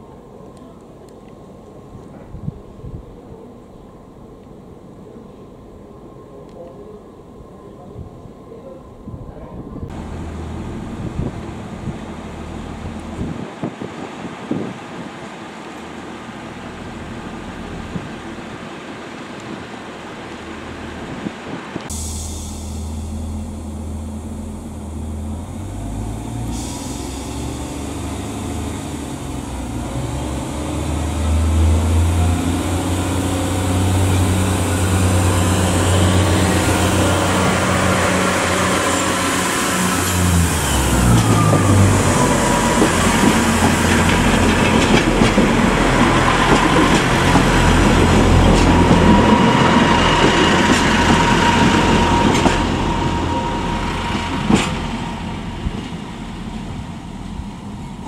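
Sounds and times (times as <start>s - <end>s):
train whine: 0.0s - 58.0s
diesel train engine accelerating: 9.8s - 58.0s
wheel clatter over rail joints: 40.8s - 56.8s.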